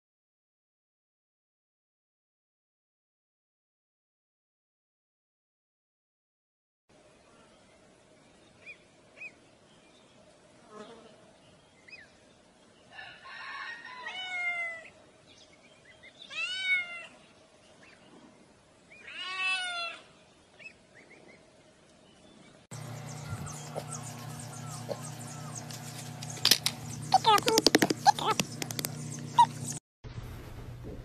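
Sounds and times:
cat meowing: 0:16.3 - 0:17.1
ducklings peeping: 0:22.8 - 0:29.8.

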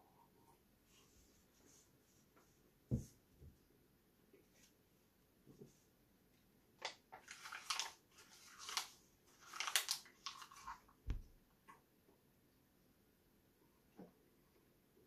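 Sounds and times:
paper crinkling and being chewed: 0:07.2 - 0:10.9.

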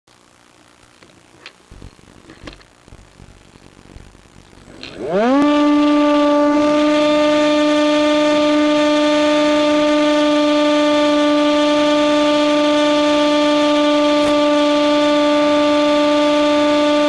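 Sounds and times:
electric motor and propeller whine: 0:04.5 - 0:17.0.

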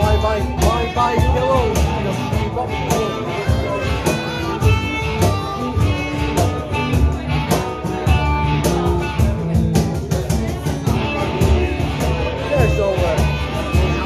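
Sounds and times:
harmonica long held notes: 0:00.0 - 0:08.5
cajon slapped in a steady beat: 0:00.0 - 0:14.0
strummed acoustic guitar: 0:00.0 - 0:14.0.

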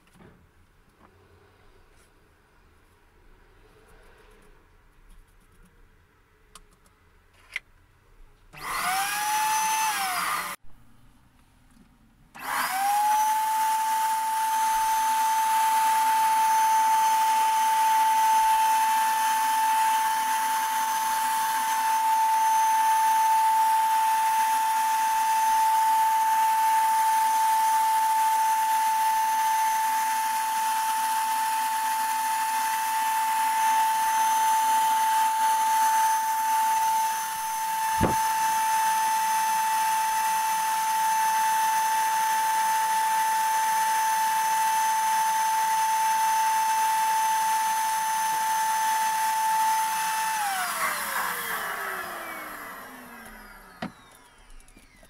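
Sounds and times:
click: 0:06.5 - 0:07.7, 0:53.2 - 0:55.0
power tool motor running: 0:08.6 - 0:10.6, 0:12.4 - 0:55.0.

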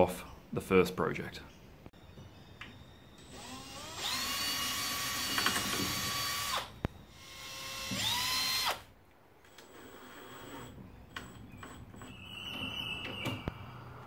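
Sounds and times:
cordless drill whining: 0:02.7 - 0:08.9.

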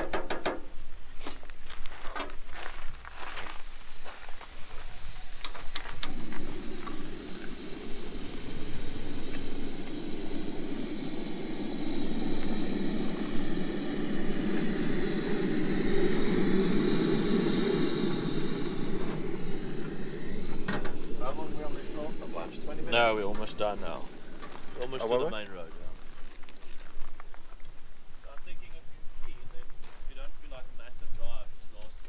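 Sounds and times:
gas burner hissing: 0:00.0 - 0:32.0
igniter clicks: 0:05.3 - 0:07.6.

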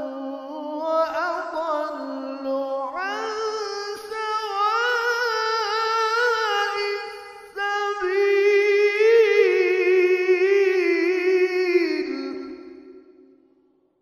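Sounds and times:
man reciting melodically: 0:00.0 - 0:12.8.

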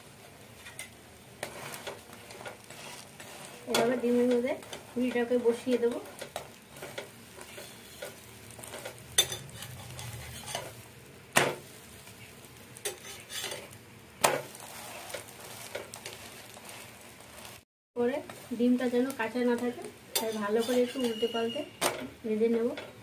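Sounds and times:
food sizzling on a pan: 0:00.0 - 0:23.0
metal spatula scraping pan: 0:00.6 - 0:10.8, 0:12.8 - 0:17.6, 0:20.1 - 0:21.6.

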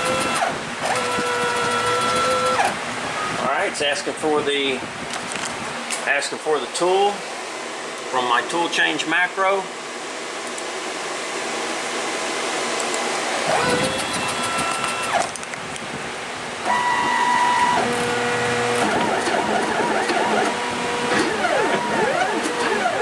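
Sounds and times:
stepper motors whining: 0:00.0 - 0:02.8, 0:12.8 - 0:15.4, 0:16.6 - 0:23.0.

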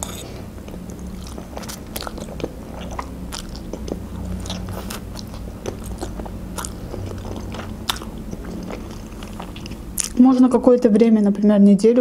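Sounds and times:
wet chewing: 0:00.0 - 0:10.2.

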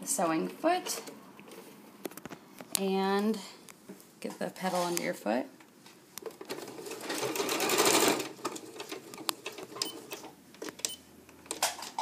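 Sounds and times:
sewing machine stitching: 0:06.5 - 0:09.0.

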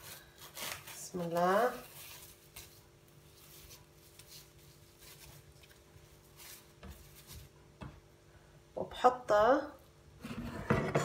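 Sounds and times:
cling film crinkling: 0:00.0 - 0:07.4.

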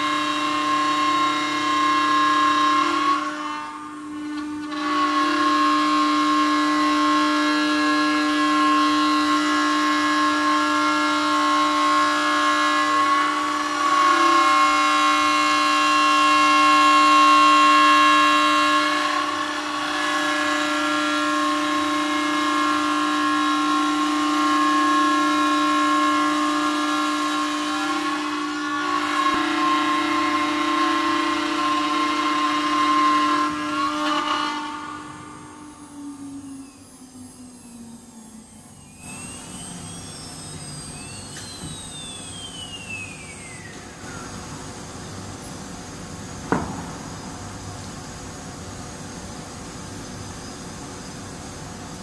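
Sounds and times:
router spindle whining: 0:18.9 - 0:45.6.

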